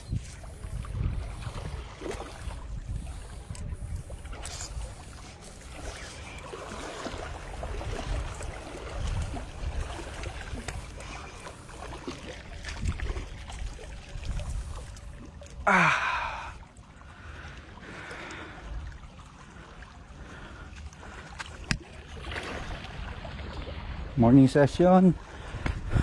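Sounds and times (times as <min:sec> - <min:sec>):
wind on microphone: 0:00.0 - 0:11.9, 0:12.5 - 0:15.2, 0:25.4 - 0:26.0
person gasping: 0:15.7 - 0:16.6.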